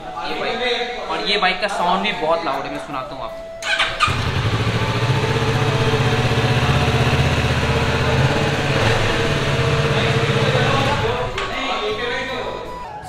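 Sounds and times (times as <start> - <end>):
motorcycle engine idling: 3.6 - 11.2.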